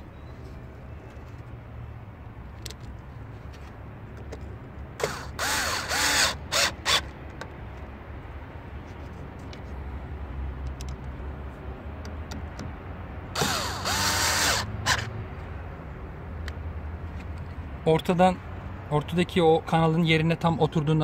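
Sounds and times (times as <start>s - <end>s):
cordless drill motor whirring: 5.0s - 7.2s, 13.4s - 15.1s.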